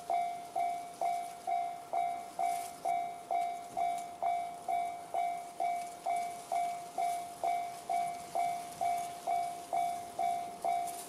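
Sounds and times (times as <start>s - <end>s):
level crossing alarm dinging: 0.0s - 11.0s.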